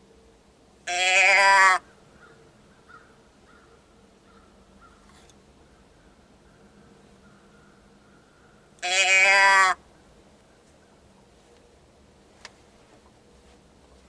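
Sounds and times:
deer bleat: 0:00.8 - 0:01.9, 0:08.8 - 0:09.8.

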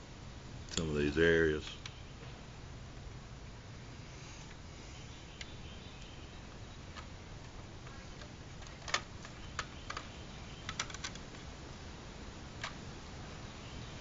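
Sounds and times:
plastic parts clicking together: 0:06.9 - 0:11.5, 0:12.6 - 0:12.8.

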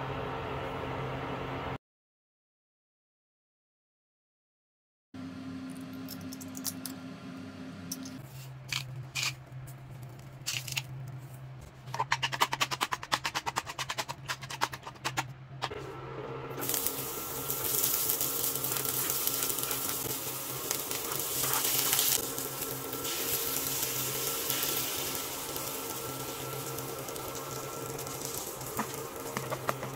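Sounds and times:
oil sizzling in a pan: 0:16.6 - 0:29.9.

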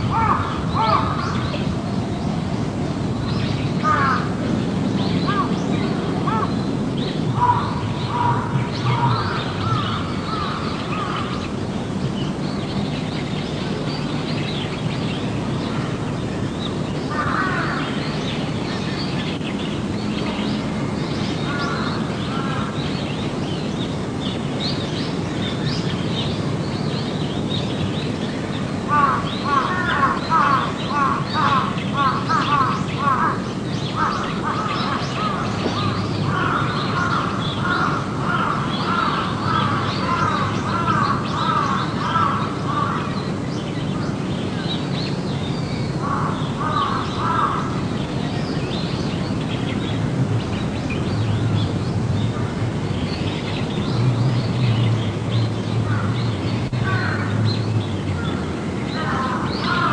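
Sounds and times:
birds calling: 0:00.0 - 0:59.9
steady background hiss: 0:00.0 - 0:59.9.

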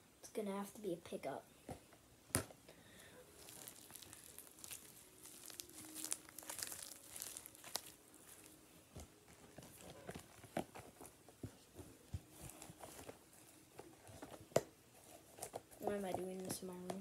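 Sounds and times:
foam beads crackling: 0:03.3 - 0:08.6
slime squishing in hands: 0:03.3 - 0:10.8.

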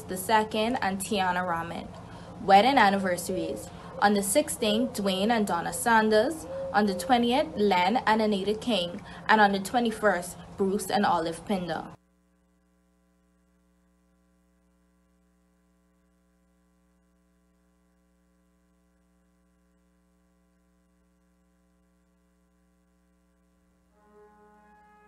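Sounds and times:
faint electrical hum: 0:00.0 - 0:25.0
music: 0:23.9 - 0:25.0.

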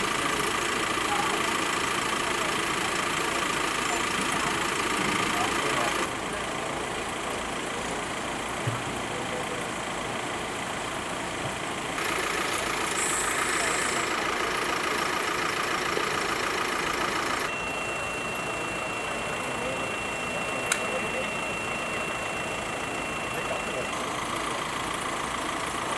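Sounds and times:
street background noise: 0:00.0 - 0:25.9
vehicle engines idling: 0:00.0 - 0:25.9
thin high whine: 0:17.5 - 0:24.6.

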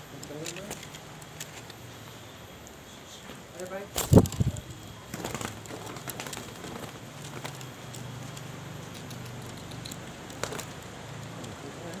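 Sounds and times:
crackling handling rustles: 0:00.0 - 0:01.9, 0:03.2 - 0:12.0
pigeon wings flapping: 0:04.0 - 0:12.0.

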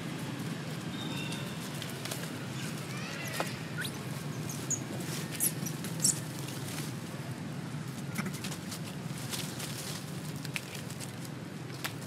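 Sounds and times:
rustle of dry leaves: 0:00.0 - 0:12.0
infant monkey squeaking: 0:02.6 - 0:06.2.

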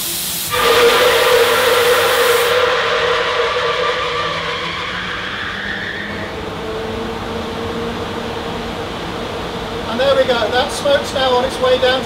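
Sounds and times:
smoke machine hissing: 0:00.0 - 0:02.8
air handling fan running: 0:00.0 - 0:12.0.

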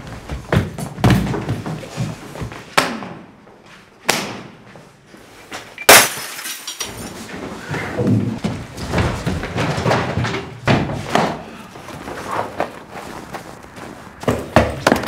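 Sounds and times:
glass shattering: 0:05.8 - 0:07.2.

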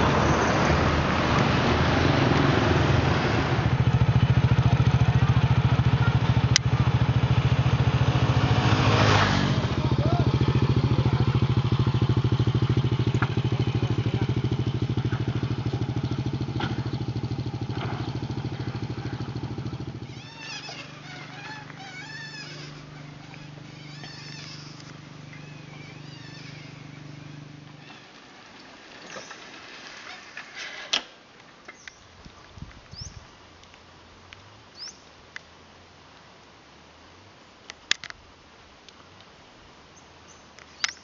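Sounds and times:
motorbike engine puttering: 0:00.0 - 0:31.1
birds chirping: 0:09.0 - 0:29.7, 0:31.7 - 0:33.4, 0:34.7 - 0:35.1.

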